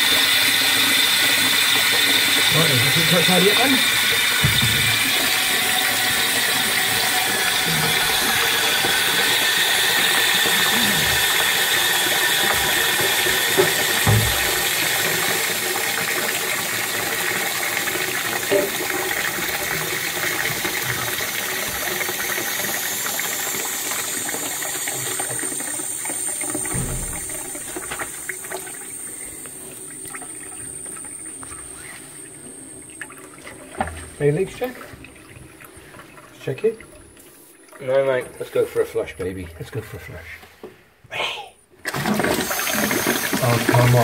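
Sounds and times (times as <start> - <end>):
toilet cistern refilling hiss: 0.0 - 40.3, 41.8 - 44.0
small knocks in cistern: 4.4 - 5.1, 12.5 - 14.9, 26.6 - 28.1.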